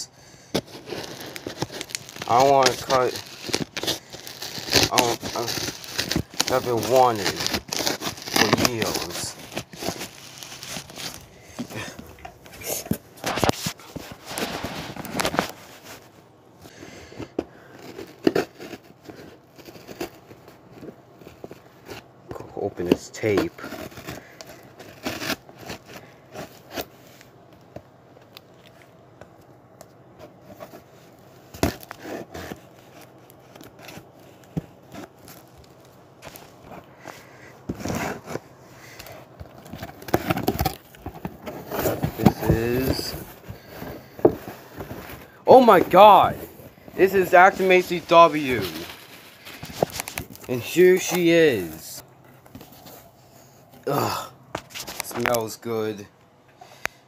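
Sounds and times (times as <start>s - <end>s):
scissors scraping packing tape: 0.6s - 11.2s, 23.3s - 26.9s
cardboard box rustling: 0.6s - 16.1s, 30.2s - 53.6s.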